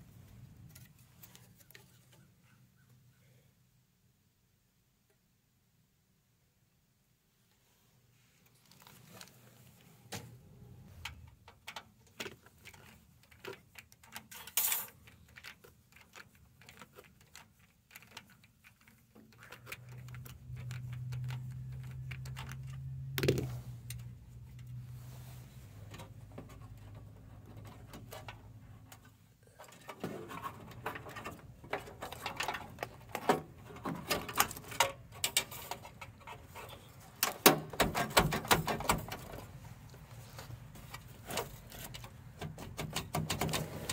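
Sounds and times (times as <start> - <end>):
cables and connectors pulled: 8.4 - 43.9
clicks and rattles of computer case: 29.7 - 36.4, 37.2 - 39.5, 41.0 - 43.9.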